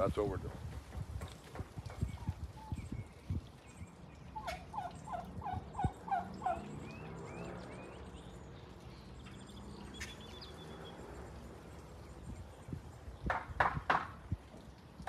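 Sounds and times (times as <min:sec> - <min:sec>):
small birds chirping: 0:01.2 - 0:15.0
turkeys calling: 0:04.0 - 0:08.6, 0:09.2 - 0:11.0.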